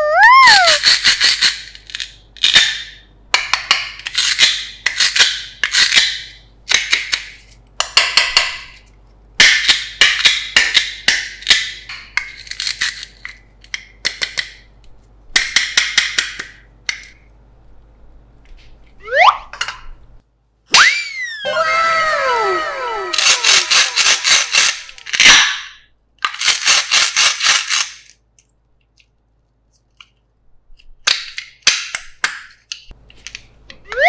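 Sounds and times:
velcro ripping: 0:23.1 - 0:25.4.

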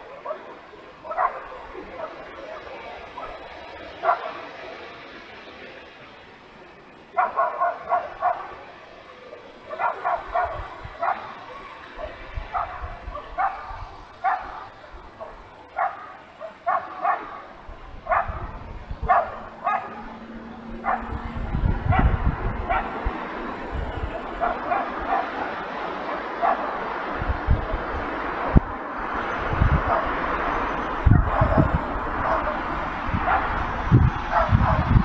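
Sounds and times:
dog barking: 0:00.0 - 0:04.5, 0:07.2 - 0:08.7, 0:09.7 - 0:20.2, 0:20.8 - 0:23.0, 0:24.2 - 0:26.9, 0:29.8 - 0:30.2, 0:31.1 - 0:33.7, 0:34.3 - 0:35.0.

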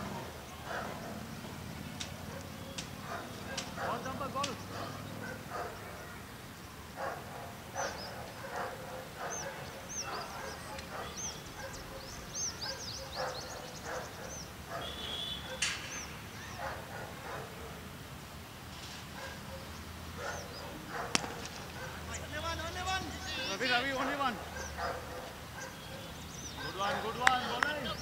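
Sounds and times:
dog barking: 0:00.6 - 0:01.2, 0:02.3 - 0:06.1, 0:07.0 - 0:15.7, 0:16.6 - 0:17.8, 0:19.2 - 0:22.1, 0:24.4 - 0:27.1
bird chirps: 0:09.2 - 0:16.7, 0:25.6 - 0:28.0.

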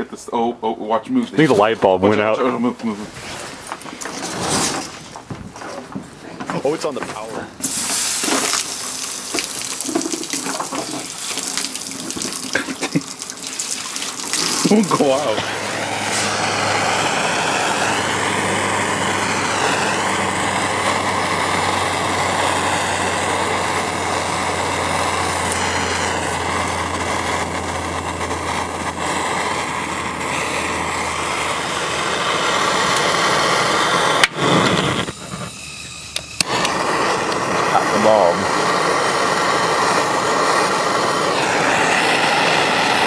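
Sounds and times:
torch flame rushing: 0:02.8 - 0:43.0
low hum: 0:14.2 - 0:43.0.

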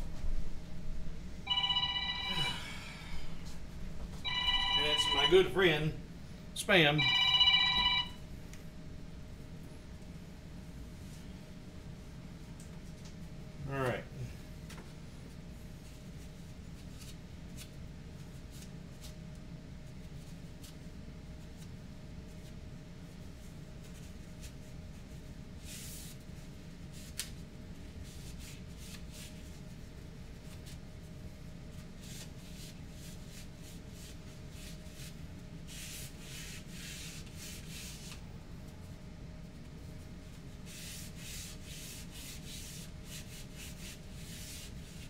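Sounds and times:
steady low hum: 0:00.0 - 0:45.0
paper napkin rubbing on wood: 0:31.8 - 0:38.2, 0:40.4 - 0:45.0.

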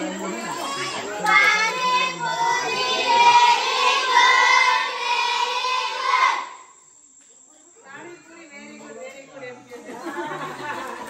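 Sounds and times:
girls singing together: 0:01.2 - 0:06.7.

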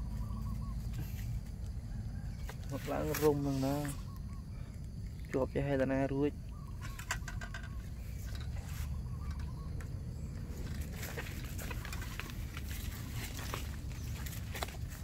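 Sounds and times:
steady low rumble: 0:03.4 - 0:15.0
wire-mesh trap clicking and rustling: 0:06.8 - 0:08.6
footsteps in grass and leaves: 0:10.4 - 0:15.0.

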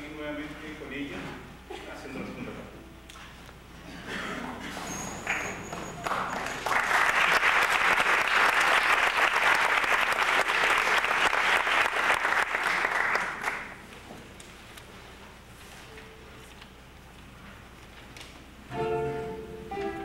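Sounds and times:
audience applauding: 0:05.2 - 0:13.8.

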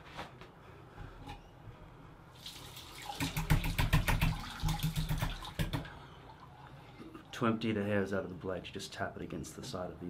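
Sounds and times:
tap water running: 0:02.3 - 0:06.5.

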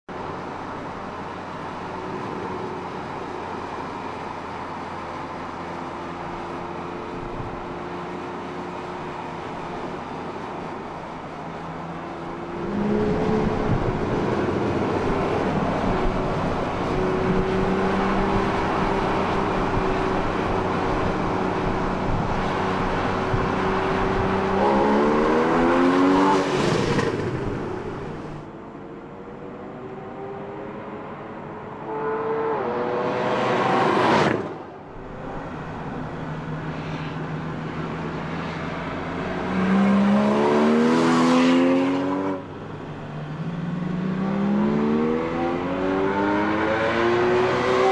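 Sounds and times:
sports car engine revving: 0:16.8 - 0:27.2.

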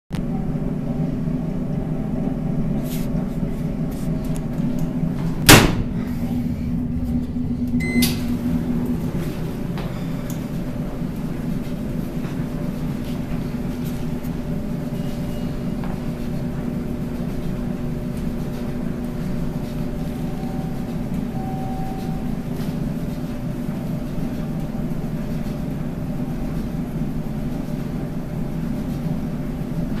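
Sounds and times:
dryer humming: 0:00.2 - 0:30.0
short electronic beep: 0:07.8 - 0:08.2, 0:20.3 - 0:22.4.

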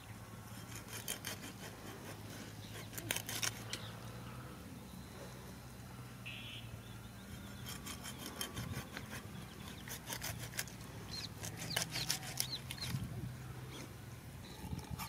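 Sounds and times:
knife scraping fish scales: 0:00.7 - 0:03.9, 0:07.7 - 0:13.0.

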